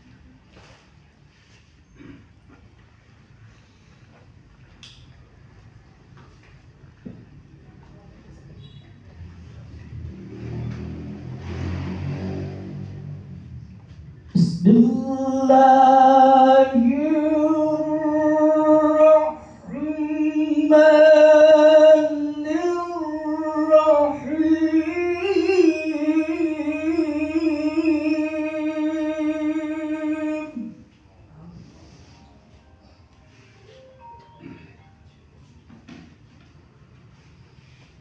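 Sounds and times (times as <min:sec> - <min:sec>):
man reciting melodically into microphone: 0:14.3 - 0:30.9.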